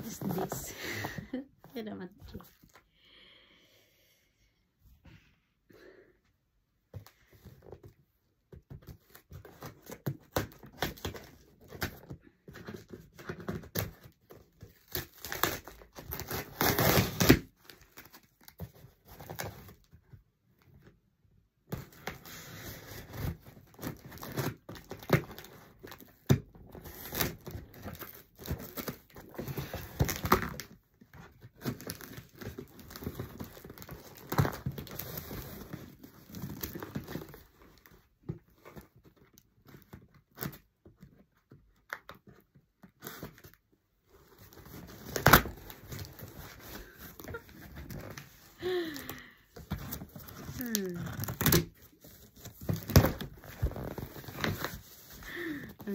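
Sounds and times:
cardboard parcel rustling: 0.0 - 2.9, 21.8 - 55.9
tape ripping: 14.8 - 17.8, 44.4 - 49.1, 49.8 - 55.9.

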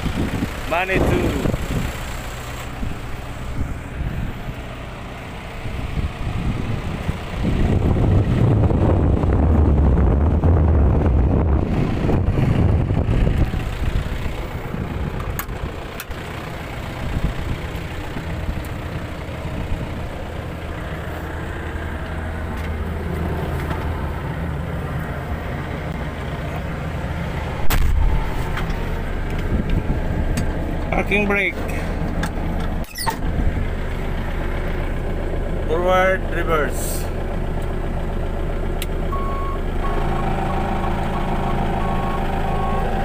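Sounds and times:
diesel engine idling: 0.0 - 43.0.

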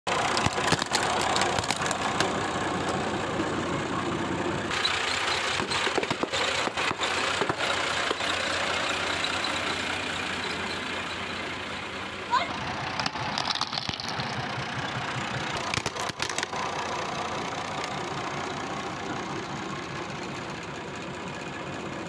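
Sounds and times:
tractor engine running: 0.1 - 22.0
plastic cups and balloons bursting: 0.2 - 2.4, 13.0 - 14.4, 15.6 - 16.6.

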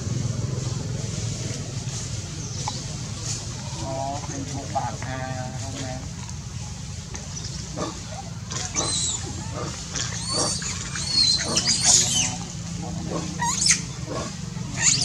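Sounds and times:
monkeys squealing: 7.8 - 15.0.

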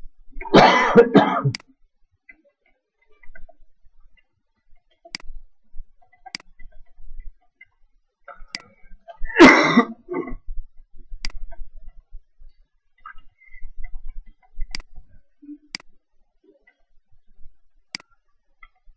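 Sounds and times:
person coughing hard: 0.5 - 1.6, 9.3 - 10.4
mouse clicks: 1.5 - 1.7, 4.8 - 5.4, 6.0 - 7.0, 8.4 - 8.8, 11.2 - 12.0, 13.9 - 15.0, 15.7 - 16.0, 17.9 - 18.8.

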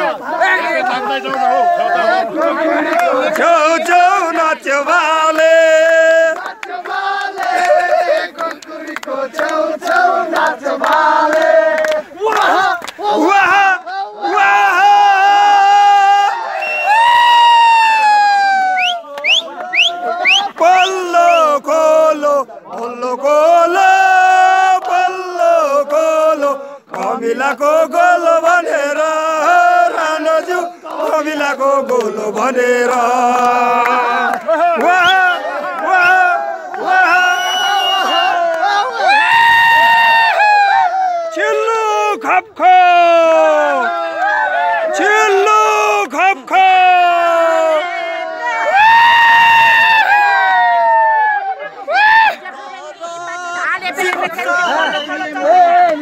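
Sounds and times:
group singing and chanting: 0.0 - 17.0, 19.3 - 39.4, 52.0 - 56.0.

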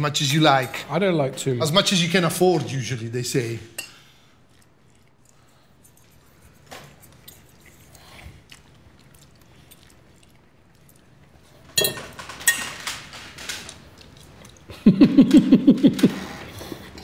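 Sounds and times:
forks clinking on plates: 11.7 - 13.0.

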